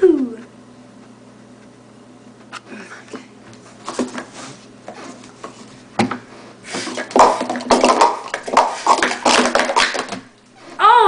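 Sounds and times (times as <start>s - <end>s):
plastic cups clattering: 6.7s - 10.2s.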